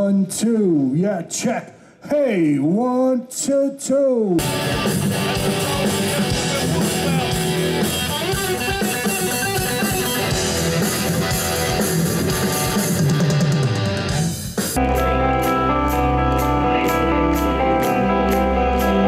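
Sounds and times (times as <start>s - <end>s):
drum kit: 4.4s - 19.0s
strummed electric guitar: 4.4s - 19.0s.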